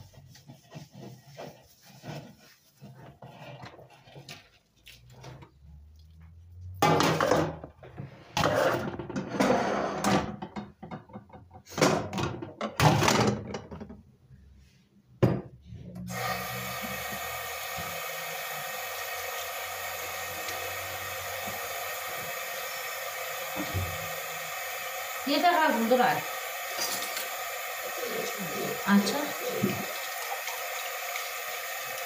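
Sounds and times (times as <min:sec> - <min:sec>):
soapy water splashing: 0:16.1 - 0:32.0
steady hiss: 0:16.2 - 0:32.0.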